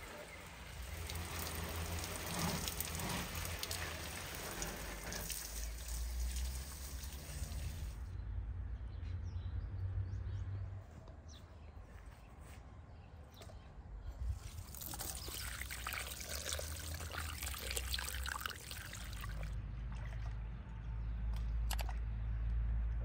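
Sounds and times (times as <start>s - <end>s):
water trickling and splashing: 0.0s - 8.0s, 14.3s - 20.6s.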